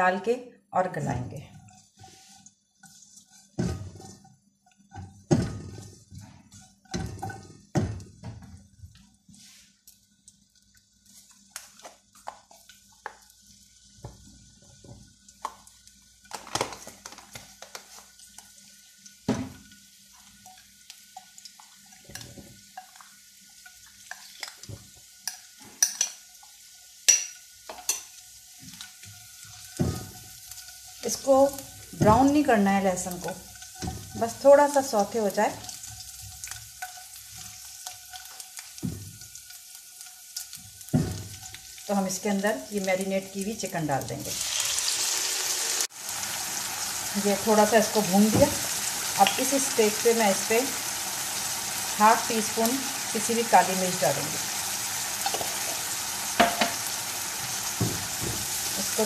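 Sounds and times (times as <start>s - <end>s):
garlic sizzling in oil: 1.0s - 59.0s
spatula knocking and scraping in wok: 1.5s - 8.6s, 31.6s - 34.5s, 56.3s - 56.9s, 57.7s - 58.7s.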